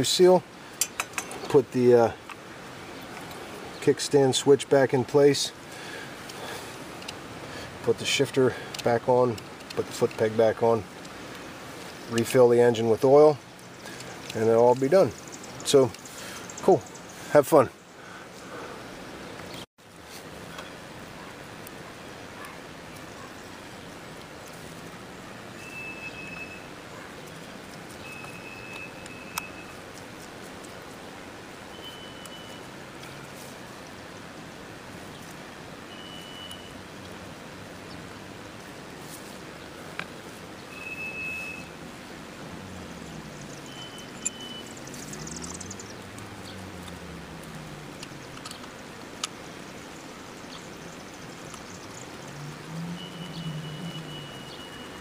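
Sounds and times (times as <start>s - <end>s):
outdoor background hiss: 0.0s - 55.0s
sharp metallic clicks: 43.5s - 49.4s.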